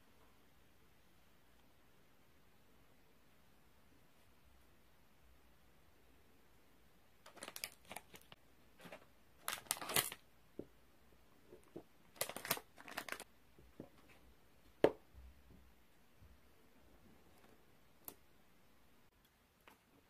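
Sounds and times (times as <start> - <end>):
plastic wrappers crinkling and tearing: 7.2 - 10.2, 12.1 - 13.3.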